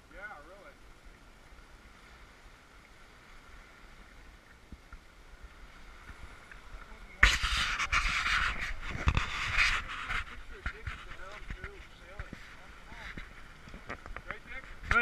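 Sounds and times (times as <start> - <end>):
wind and water rushing: 0.0 - 15.0
loud rushing hiss with crackle: 7.0 - 15.0.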